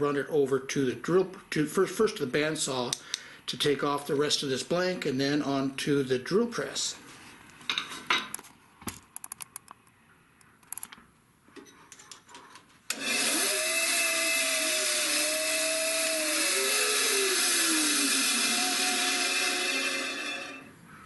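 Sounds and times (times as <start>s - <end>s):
bandsaw cutting wood: 12.9s - 20.7s.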